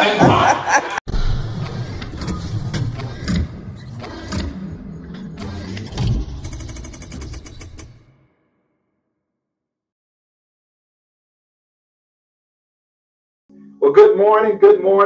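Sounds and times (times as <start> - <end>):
rapid clicks: 5.2 - 8.2.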